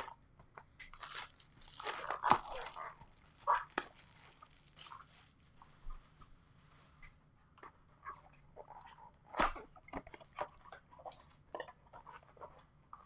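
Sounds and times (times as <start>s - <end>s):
packaging tearing and crinkling: 0.8s - 5.4s.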